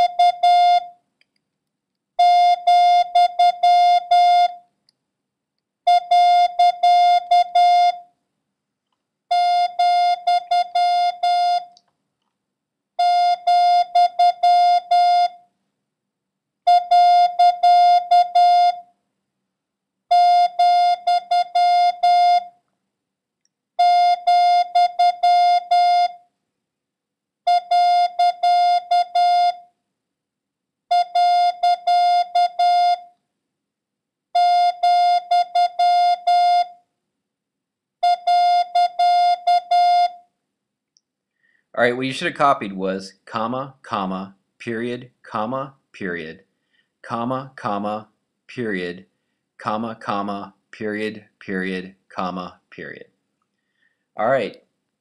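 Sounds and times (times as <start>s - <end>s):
morse code beeps: 0.0s - 0.9s, 5.9s - 8.0s, 9.4s - 11.7s, 38.0s - 40.2s.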